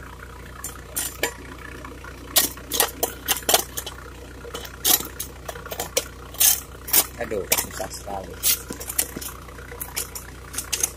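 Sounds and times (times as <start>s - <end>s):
car engine idling: 0.0s - 10.9s
sharp clicks and knocks: 2.3s - 10.9s.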